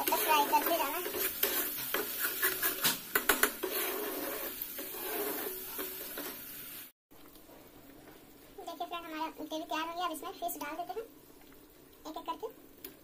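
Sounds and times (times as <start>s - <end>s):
metal spoon scraping a pan: 0.0s - 6.4s
paste frying: 0.0s - 13.0s.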